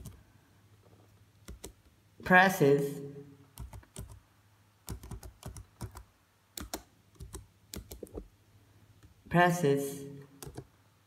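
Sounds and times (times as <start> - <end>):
computer keyboard typing: 1.4 - 1.8, 3.6 - 4.2, 4.8 - 8.3, 10.4 - 10.7.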